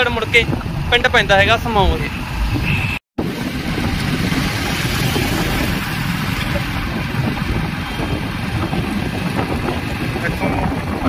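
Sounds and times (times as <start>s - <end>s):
wind rumble on microphone: 0.0s - 11.0s
motorcycle engine: 2.5s - 11.0s.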